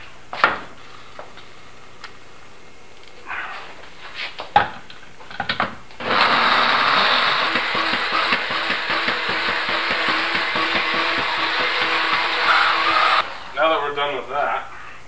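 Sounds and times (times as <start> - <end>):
blender running: 6.0 - 13.8.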